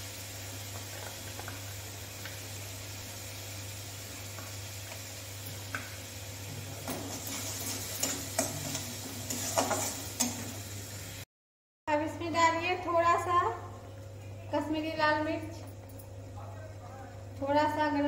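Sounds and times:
low sizzle: 0.0 - 11.3, 11.9 - 18.0
metal spoon scraping pan: 6.8 - 10.5.

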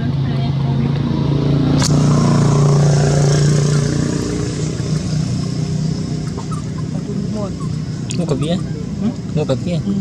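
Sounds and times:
engine humming: 0.0 - 10.0.

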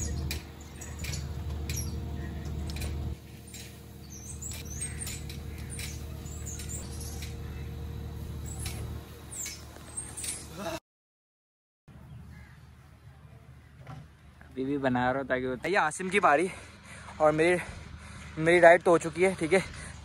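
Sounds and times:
springs squeaking and clicking: 0.0 - 10.6
steady low hum: 0.0 - 10.8.

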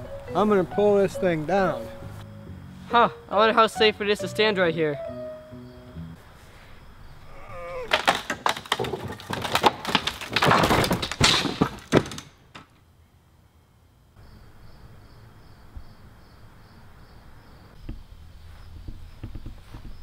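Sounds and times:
wooden boards crashing and clattering: 7.9 - 12.8.

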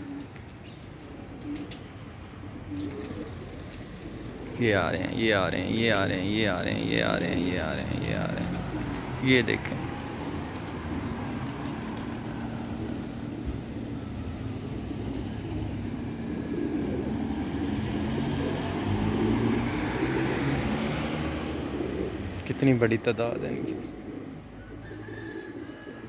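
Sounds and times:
traffic engines rumbling: 0.0 - 26.0
vehicle passing: 0.9 - 25.9.

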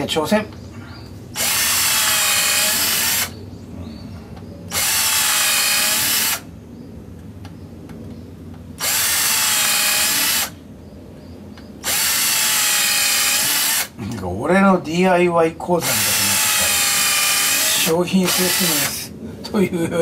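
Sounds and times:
cordless drill whining into wood: 1.4 - 3.4, 4.7 - 6.4, 8.8 - 10.6, 11.8 - 14.0, 15.8 - 19.1.

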